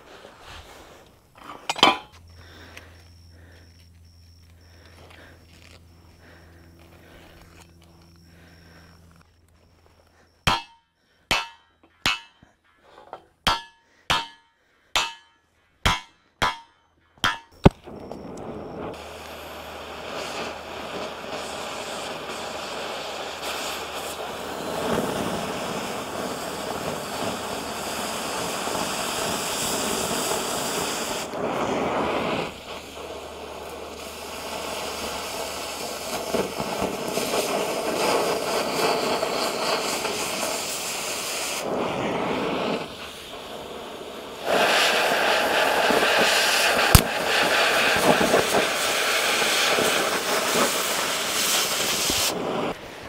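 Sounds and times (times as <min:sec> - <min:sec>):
cutting torch hissing: 0:00.0 - 0:10.4, 0:17.6 - 0:53.0
sharp pop: 0:46.9 - 0:47.1.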